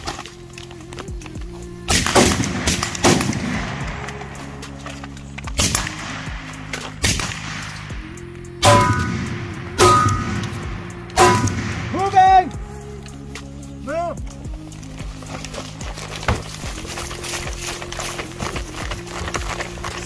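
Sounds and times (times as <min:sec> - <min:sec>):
background music: 0:00.0 - 0:20.0
rifle shots: 0:01.9 - 0:04.1, 0:05.6 - 0:08.0, 0:08.6 - 0:12.2.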